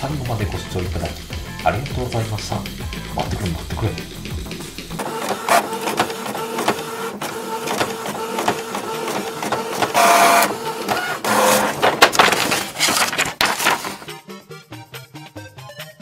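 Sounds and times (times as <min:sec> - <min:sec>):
loud printer whirring bursts: 0:05.0 - 0:14.0
printer clicking: 0:05.0 - 0:14.1
printer whirring: 0:05.0 - 0:14.1.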